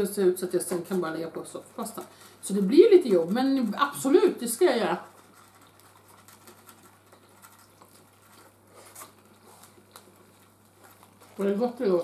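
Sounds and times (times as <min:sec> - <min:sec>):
closed-mouth chewing: 0:05.0 - 0:11.5.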